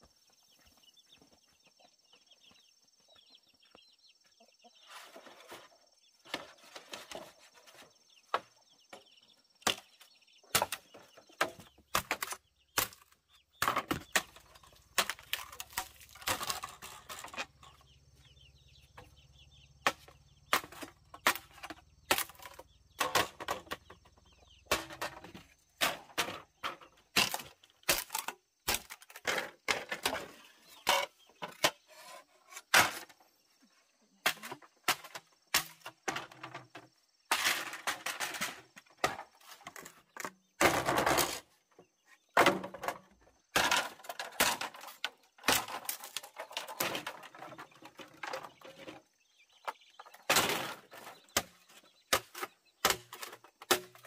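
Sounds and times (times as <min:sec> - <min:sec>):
chickens clucking: 0:00.0 - 0:54.0.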